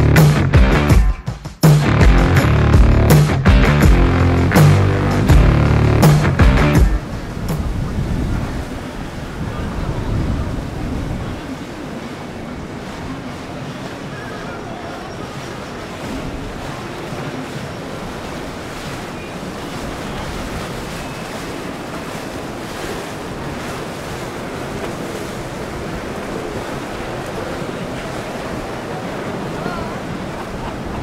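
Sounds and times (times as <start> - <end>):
moving water: 1.8 - 31.0
low rumble: 1.9 - 7.0
wind on microphone: 5.3 - 31.0.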